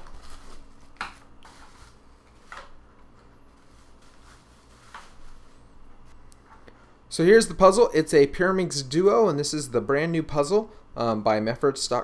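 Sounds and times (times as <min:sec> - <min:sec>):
plastic and cardboard rustling: 0:00.0 - 0:06.1.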